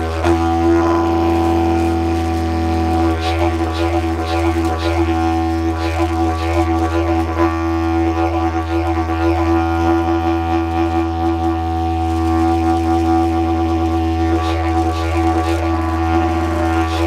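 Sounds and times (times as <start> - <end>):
didgeridoo drone: 0.0 - 17.0.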